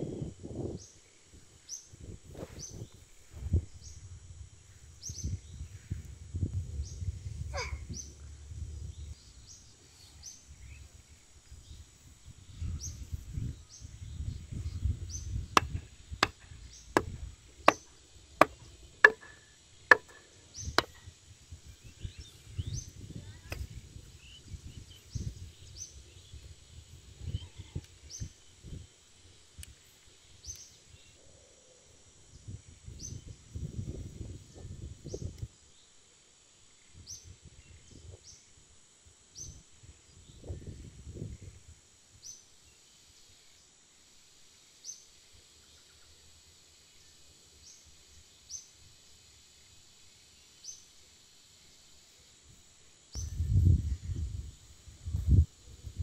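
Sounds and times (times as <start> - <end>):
sharp knocks: 17.0 - 20.2.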